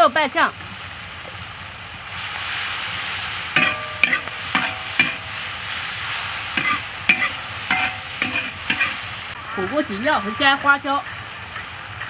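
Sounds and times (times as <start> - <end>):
food sizzling in hot oil: 0.0 - 12.0
metal spatula scraping wok: 3.0 - 9.4.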